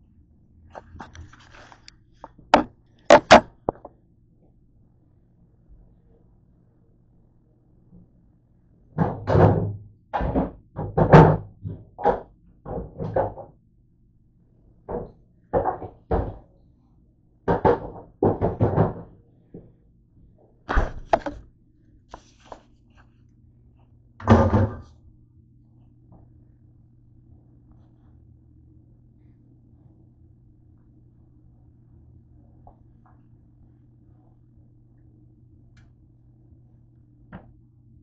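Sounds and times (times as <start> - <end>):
kitchen items knocking: 2.6 - 3.9, 21.0 - 21.4.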